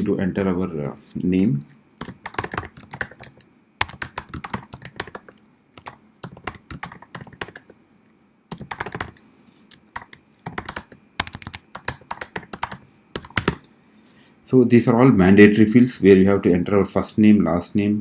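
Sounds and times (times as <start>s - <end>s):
keyboard typing: 2.0s - 7.8s, 8.5s - 13.6s.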